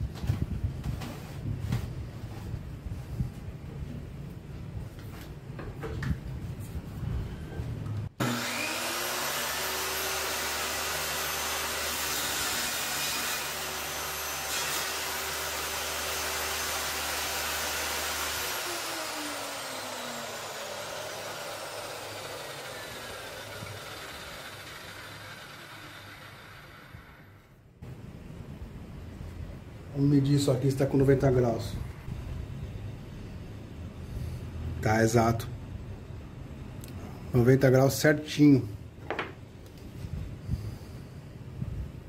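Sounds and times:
saw cutting wood: 8.2 - 27.4
circular saw running: 8.2 - 27.6.

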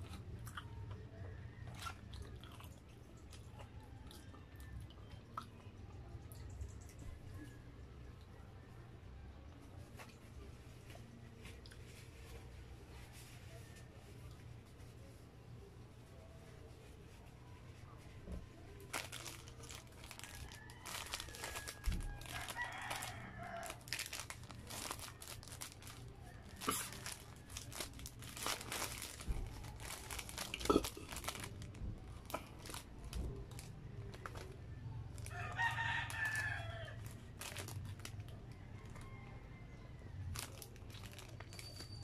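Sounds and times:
plastic wrapper crinkling: 18.8 - 34.6, 35.2 - 38.3, 40.3 - 42.0
rooster crowing: 20.2 - 23.9, 35.2 - 37.2, 38.6 - 40.0.

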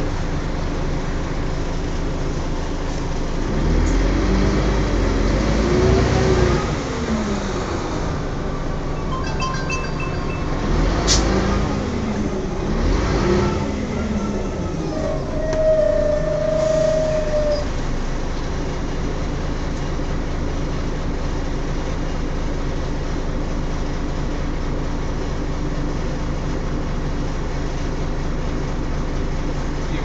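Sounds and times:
bus diesel engine idling: 0.0 - 30.0.

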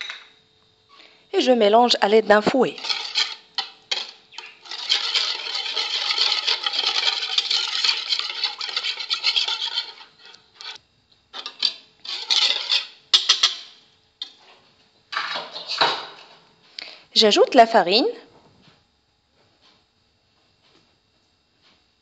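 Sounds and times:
whisk clattering in a bowl: 2.7 - 10.8, 11.4 - 14.4.

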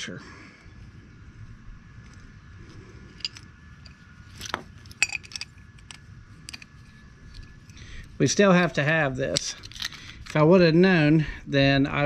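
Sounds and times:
small metal hardware clinking: 3.1 - 7.8.

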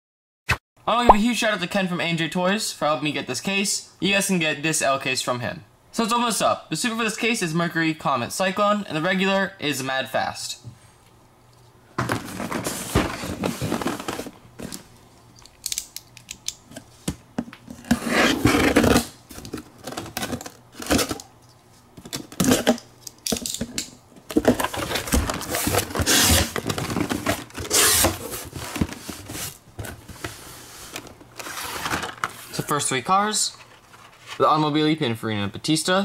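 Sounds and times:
cardboard tearing and rustling: 12.1 - 14.4, 17.8 - 21.3, 22.2 - 22.8, 24.3 - 32.6
box cutter slicing tape: 25.4 - 26.6, 27.6 - 28.3.

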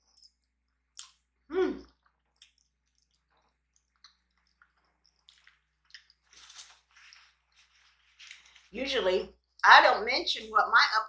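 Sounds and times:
wet chewing clicks and smacks: 0.0 - 7.3.

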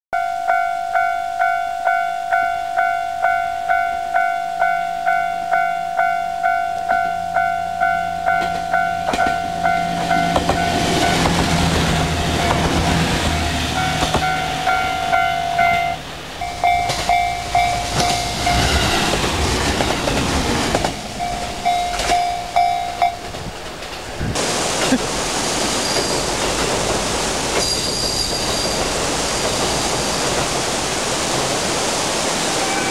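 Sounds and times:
level crossing warning bell: 0.2 - 18.8, 21.1 - 23.3
rushing mountain stream: 9.3 - 32.9.

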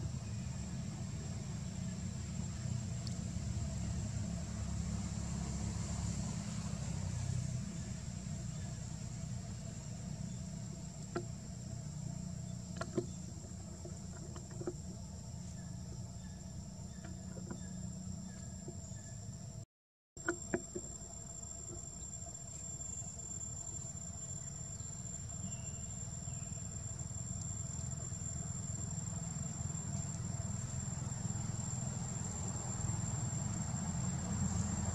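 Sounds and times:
low steady rumble: 0.0 - 34.9
high insect chirring: 9.7 - 19.5, 20.2 - 34.9.

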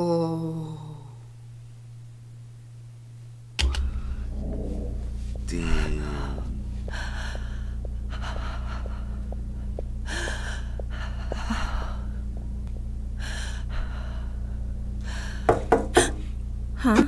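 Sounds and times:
steady low hum: 0.0 - 17.0
woman sobbing: 16.8 - 17.0.

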